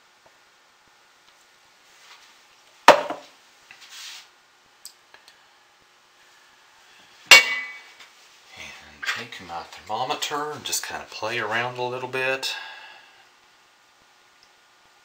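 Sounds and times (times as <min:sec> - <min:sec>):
plastic pitcher knocking on stone: 0:02.9 - 0:03.2.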